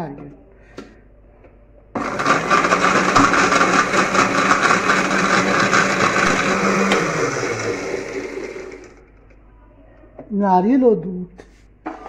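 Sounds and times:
electric blender running: 2.0s - 9.1s.

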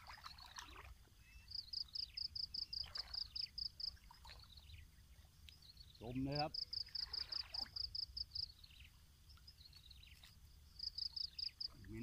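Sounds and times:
water sloshing: 0.0s - 8.2s.

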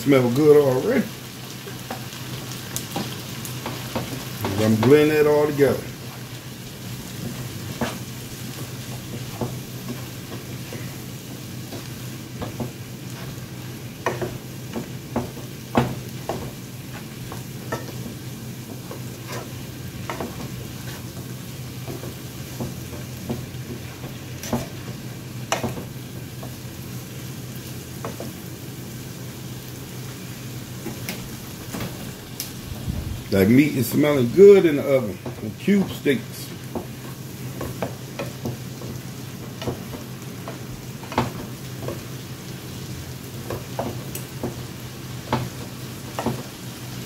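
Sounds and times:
vegetables sizzling in a skillet: 0.0s - 47.0s
wooden spoon scraping a pan: 2.8s - 26.6s.

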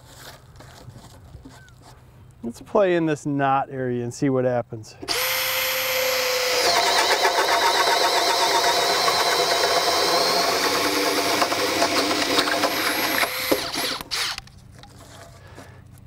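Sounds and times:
drill motor whining: 5.1s - 14.4s.

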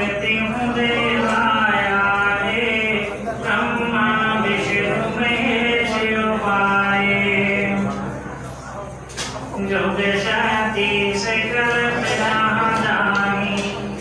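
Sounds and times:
man chanting into a microphone: 0.0s - 8.2s, 9.5s - 14.0s.

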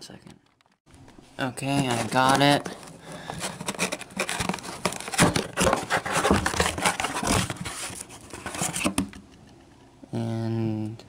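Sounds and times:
cardboard tearing: 1.8s - 9.0s.

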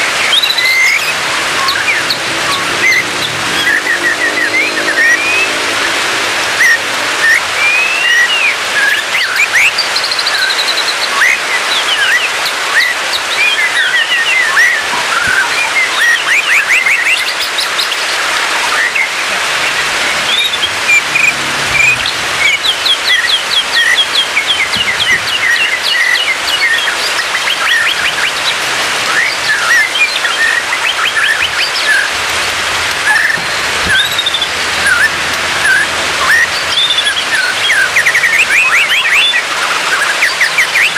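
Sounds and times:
bird singing: 0.0s - 32.3s, 32.9s - 40.9s.

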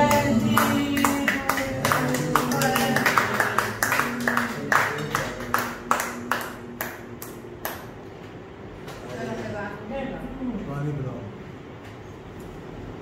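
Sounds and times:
people clapping in time: 0.0s - 8.2s.

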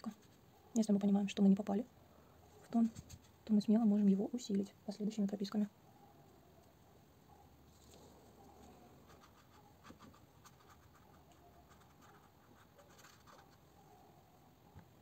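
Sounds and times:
paintbrush strokes on paper: 0.0s - 0.6s, 7.7s - 13.6s.

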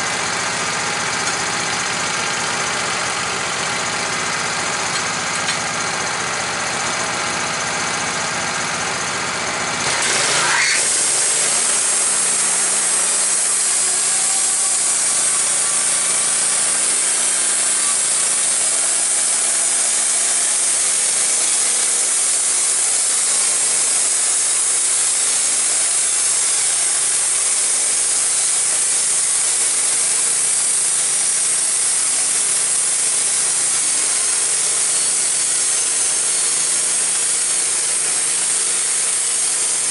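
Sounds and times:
sawmill engine revving: 0.0s - 39.9s
band blade sawing log: 9.8s - 39.9s.

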